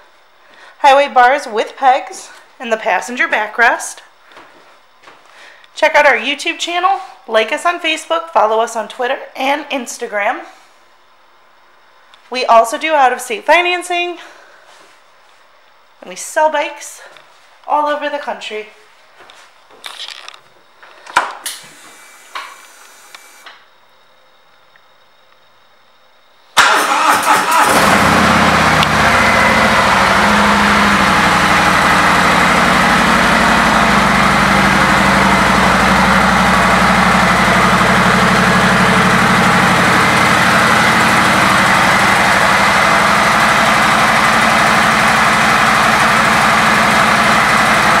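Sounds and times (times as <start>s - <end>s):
motorcycle engine starting and idling: 26.6s - 48.0s.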